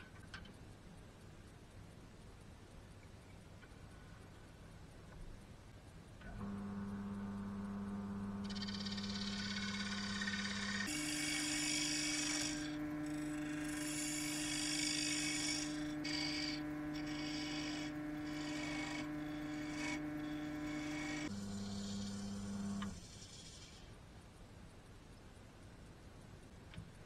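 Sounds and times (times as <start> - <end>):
lathe motor hum: 6.3 - 23.6
tool shaving wood: 8.4 - 22.3.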